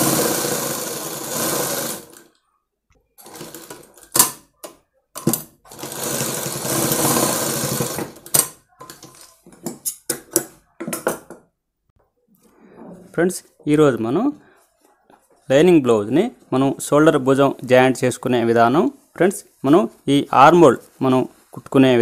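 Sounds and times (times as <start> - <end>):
sewing machine stitching: 0.0 - 2.3, 3.2 - 4.2, 5.7 - 8.4.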